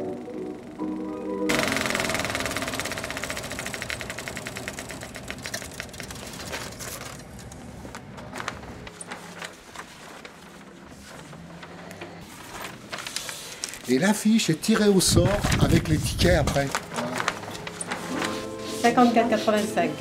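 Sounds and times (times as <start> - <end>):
film projector clattering: 1.5 - 14.0, 14.7 - 18.4
paper poster crinkling: 4.6 - 19.7.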